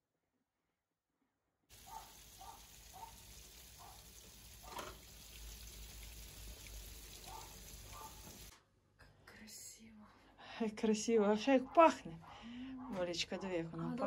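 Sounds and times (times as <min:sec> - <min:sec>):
faint sizzling with pops: 0:01.7 - 0:08.5.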